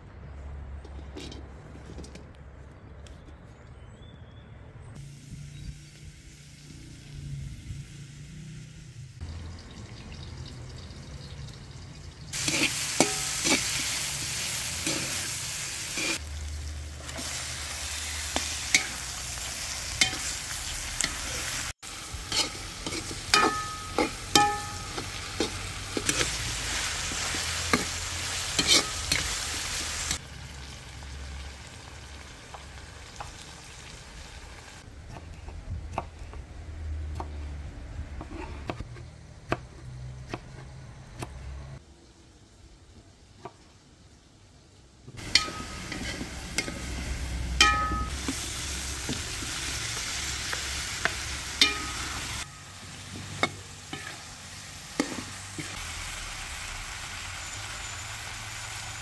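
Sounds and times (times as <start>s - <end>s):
onions sizzling in hot oil: 5.0s - 34.8s, 45.1s - 59.0s
spoon stirring against metal pot: 22.2s - 26.4s, 28.6s - 29.4s, 45.2s - 47.0s, 51.0s - 52.4s.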